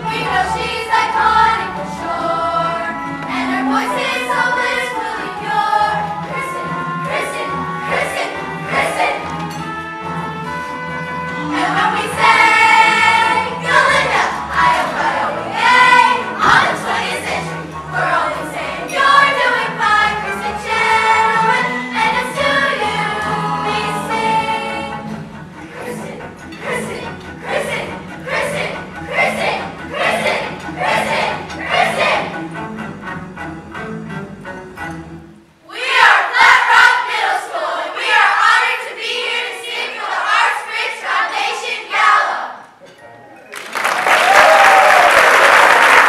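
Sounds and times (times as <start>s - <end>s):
young voices singing in chorus: 0.0s - 9.6s, 11.4s - 32.4s, 35.6s - 42.8s
instrumental accompaniment: 0.0s - 40.5s.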